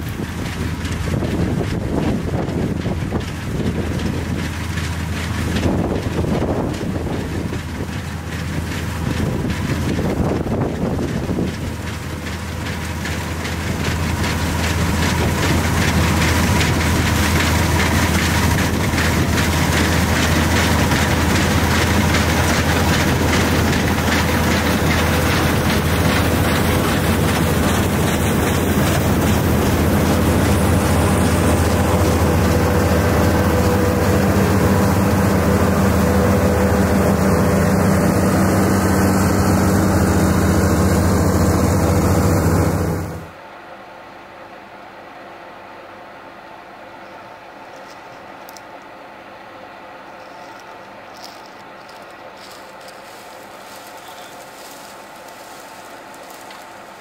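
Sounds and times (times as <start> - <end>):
wind buffeting microphone: 0.0 - 12.2
threshing machinery rattling: 0.0 - 43.4, 50.2 - 57.0
combine harvester engine hum: 0.0 - 57.0.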